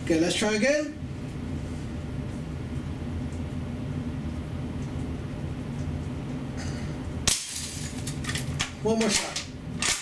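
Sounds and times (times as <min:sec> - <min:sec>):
low hum with hiss: 0:00.0 - 0:10.0.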